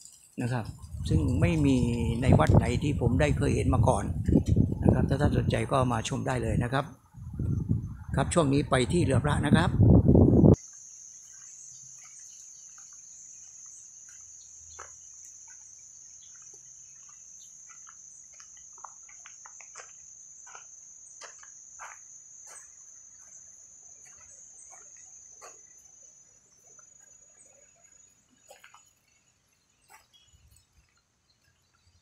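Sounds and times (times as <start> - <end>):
high-pitched insect drone: 0.0 - 32.0
faint ticks and chirps: 10.5 - 32.0.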